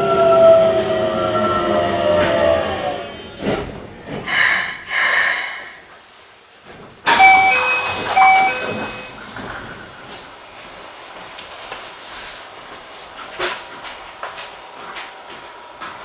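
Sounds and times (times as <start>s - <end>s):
train doors opening clunk: 0.0s - 4.8s, 6.6s - 10.4s, 13.2s - 14.4s
air hiss bursts: 4.3s - 6.0s
door chime: 7.1s - 9.2s.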